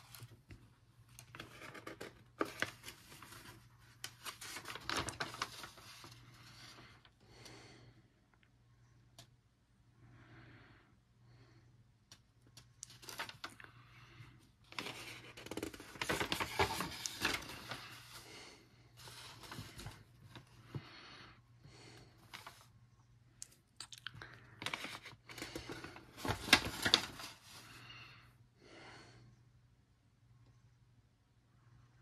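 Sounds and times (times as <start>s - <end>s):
paper rustling and crinkling: 0.0s - 7.1s, 12.9s - 13.6s, 14.6s - 18.3s, 19.0s - 20.8s, 22.2s - 22.7s, 24.5s - 27.9s.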